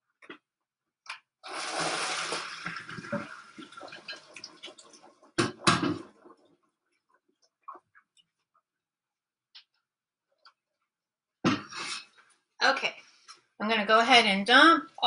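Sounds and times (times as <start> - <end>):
water pouring into a colander: 1.4 - 6.4.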